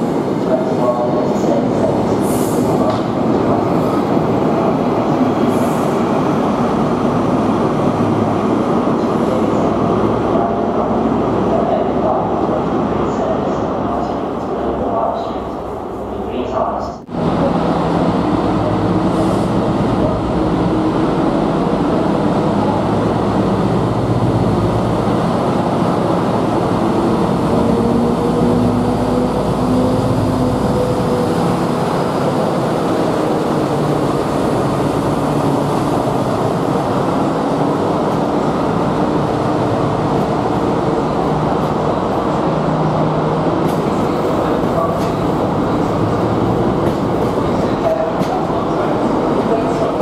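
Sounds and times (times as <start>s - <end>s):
diesel locomotive engine drone: 0.0s - 50.0s
train wheels on rails: 24.4s - 50.0s.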